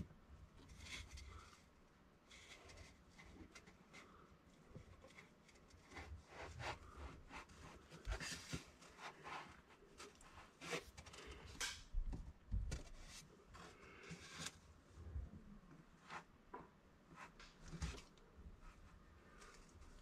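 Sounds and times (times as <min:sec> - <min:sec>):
hands rubbing and scraping cardboard: 0:00.6 - 0:11.8.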